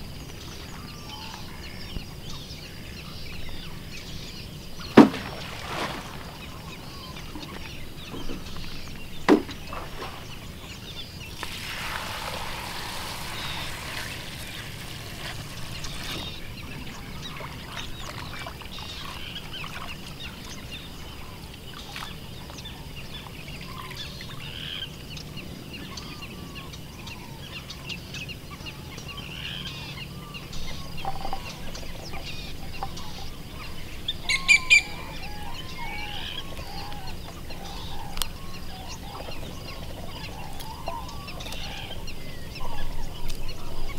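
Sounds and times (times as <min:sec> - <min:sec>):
sharp knock: 0:05.0 - 0:05.3
liquid pouring: 0:11.4 - 0:16.2
poultry clucking and quacking: 0:30.8 - 0:38.3.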